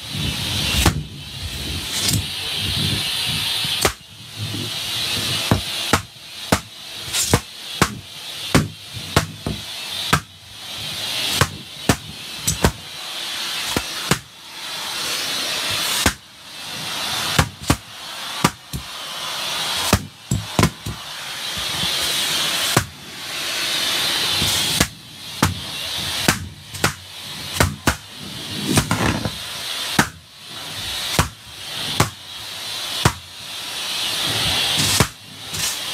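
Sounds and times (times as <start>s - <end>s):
vacuum airflow hissing: 0.0s - 35.9s
balloons popping: 3.6s - 10.4s, 11.2s - 12.9s, 13.6s - 14.3s, 15.7s - 16.3s, 17.2s - 18.9s, 19.8s - 23.0s, 24.4s - 30.2s, 31.0s - 32.3s, 33.0s - 33.3s, 34.7s - 35.8s.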